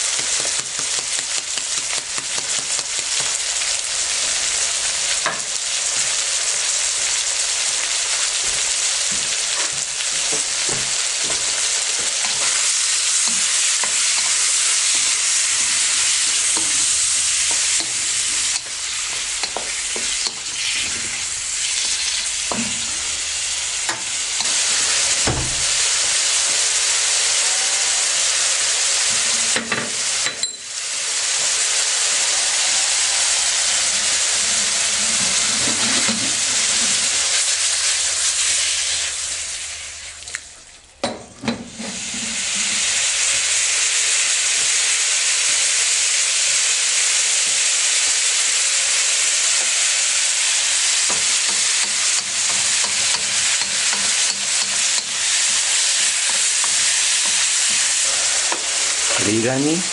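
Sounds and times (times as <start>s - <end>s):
beef and onions sizzling in wok: 0.0s - 59.9s
wok knocking on burner: 0.1s - 3.4s, 8.4s - 14.1s, 16.5s - 21.1s, 25.2s - 25.9s, 51.1s - 55.2s.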